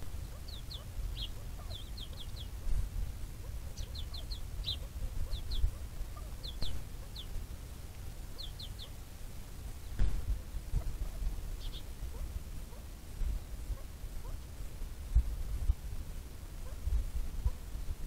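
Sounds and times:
bird chirping: 0.0 - 7.4, 8.2 - 9.0, 9.8 - 14.4
low background rumble: 0.0 - 18.0.

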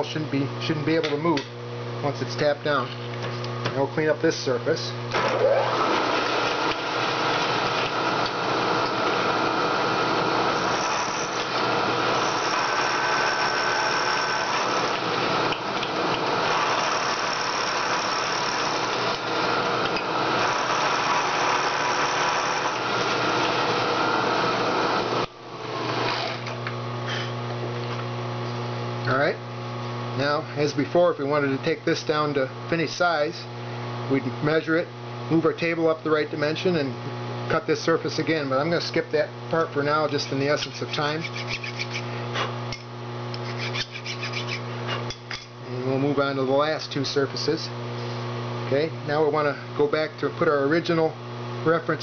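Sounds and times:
spindle motor humming: 4.2 - 27.5, 39.0 - 45.2
milling machine cutting metal: 5.1 - 25.2.

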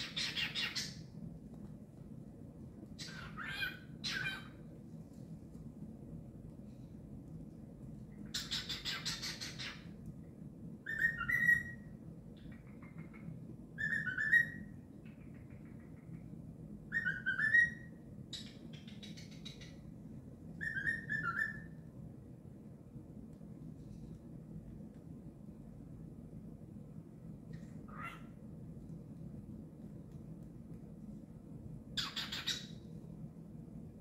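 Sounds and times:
cockatiel whistling: 10.9 - 11.8, 13.8 - 14.7, 16.9 - 19.3, 20.6 - 21.7, 32.0 - 32.7.

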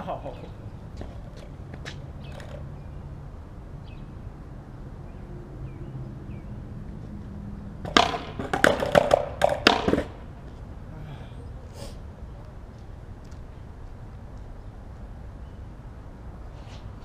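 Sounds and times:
outdoor background noise: 0.0 - 17.0
skateboard clattering on concrete: 1.0 - 2.6, 7.8 - 10.3.

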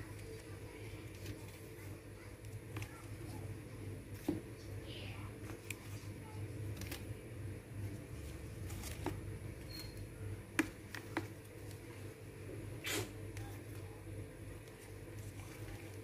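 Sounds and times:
leaf packets clicking and rustling: 6.6 - 7.1, 8.0 - 9.3.

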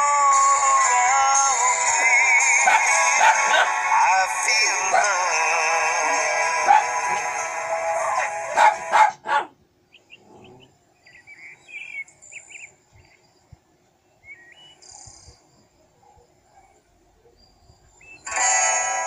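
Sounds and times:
song playing: 0.0 - 9.1, 18.3 - 19.0.

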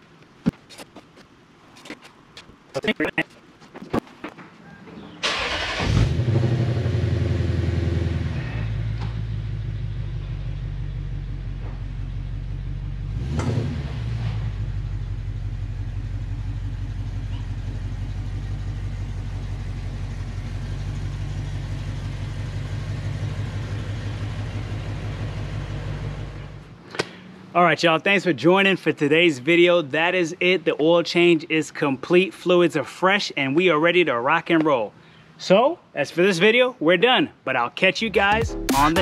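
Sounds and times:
car engine starting and idling: 5.0 - 27.4.

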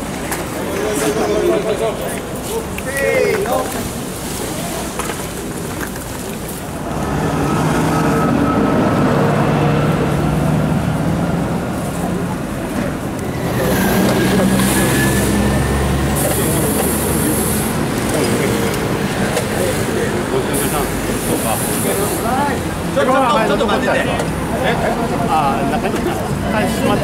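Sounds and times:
faint voices chattering: 0.0 - 7.1, 7.9 - 27.0
vehicle engine humming: 4.7 - 27.0
bus rumbling past: 6.3 - 27.0.

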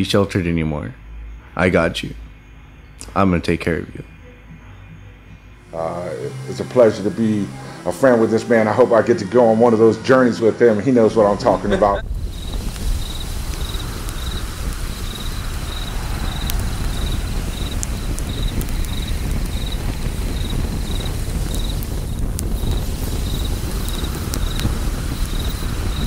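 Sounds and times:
crickets chirping: 0.0 - 26.0
fire crackling pops: 5.7 - 6.8, 11.6 - 26.0
low steady rumble: 11.0 - 26.0.

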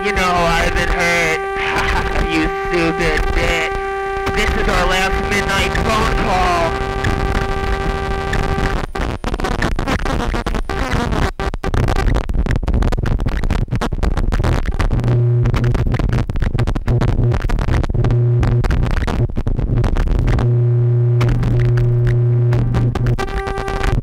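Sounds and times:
low synthesizer drone: 0.0 - 9.2, 20.4 - 24.0
high steady tone: 0.0 - 11.2
harsh electronic synthesizer noise: 0.0 - 12.3, 19.9 - 24.0.

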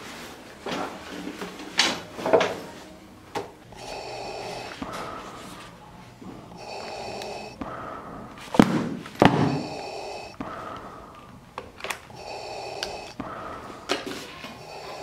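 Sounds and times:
hissing respirator breathing: 3.7 - 15.0
loud sharp thuds: 8.5 - 9.7.

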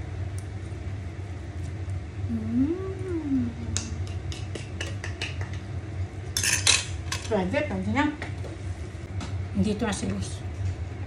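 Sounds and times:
steady low hum: 0.0 - 11.0
person humming mmm: 2.2 - 5.2.

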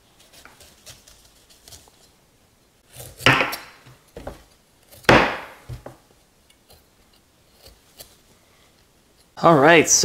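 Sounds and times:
knife slicing on wooden board: 2.9 - 3.6.

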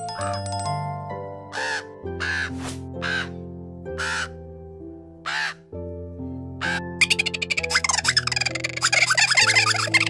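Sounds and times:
background music: 0.0 - 10.0
crow cawing: 1.5 - 3.4, 4.0 - 4.4, 5.2 - 5.6, 6.6 - 7.2.

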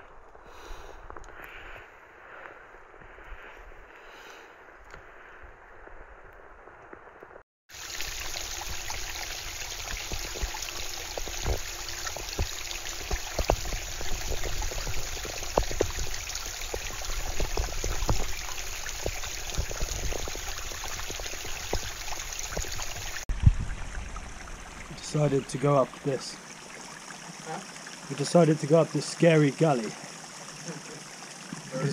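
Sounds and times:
water rushing over rock: 7.7 - 26.4
small knocks and low thumps: 9.8 - 23.8.

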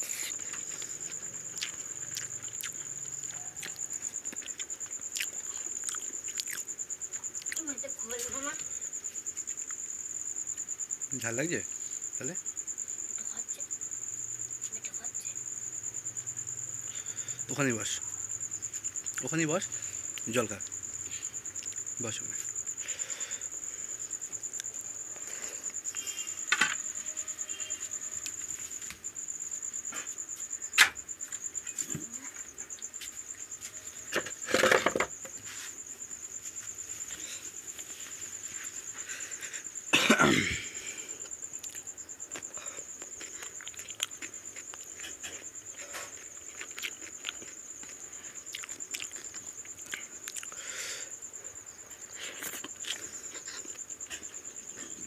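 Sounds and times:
person coughing harshly: 39.9 - 40.8.

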